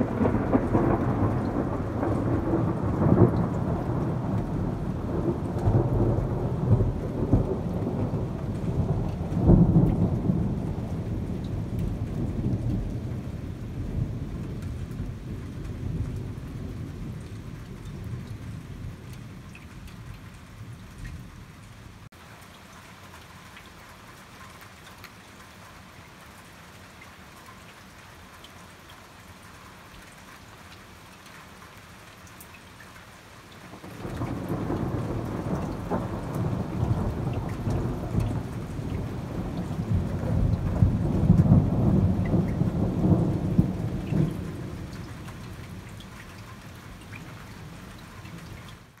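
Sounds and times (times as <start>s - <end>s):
thunder rolling: 0.0s - 17.1s, 33.9s - 45.0s
steady rain: 0.0s - 49.0s.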